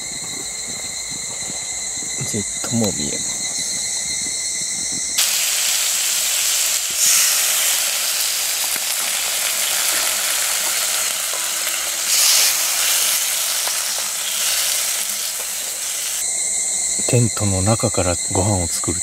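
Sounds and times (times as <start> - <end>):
pork and onions sizzling in wok: 5.2 - 16.4.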